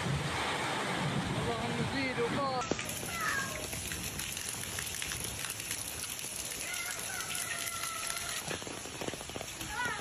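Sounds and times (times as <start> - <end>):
light rain on pavement: 2.6 - 10.0.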